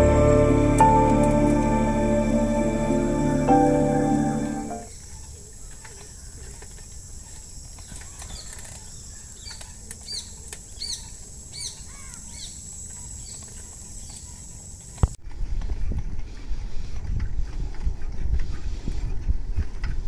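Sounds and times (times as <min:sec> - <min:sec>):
high-pitched whine: 0:00.0 - 0:04.9
low rumble: 0:00.0 - 0:04.9.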